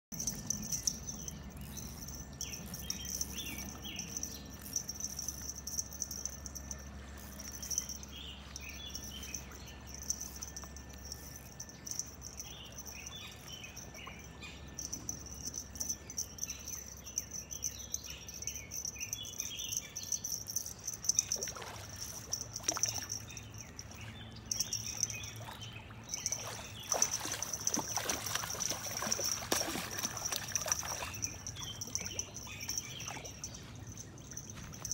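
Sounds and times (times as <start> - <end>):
birds chirping: 0.1 - 34.9
fish splashing and thrashing: 20.6 - 34.9.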